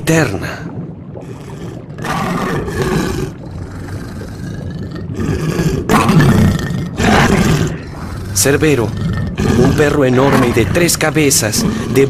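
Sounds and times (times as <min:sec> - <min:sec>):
large beast roaring and growling: 0:02.0 - 0:10.9.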